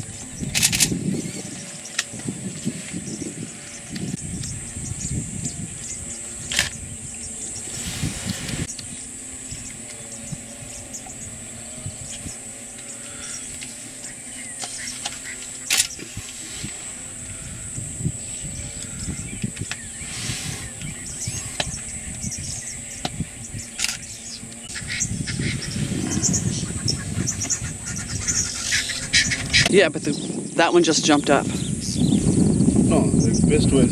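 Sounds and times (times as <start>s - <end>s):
high-pitched insect chorus: 0.0s - 33.9s
low rumble: 25.2s - 28.6s.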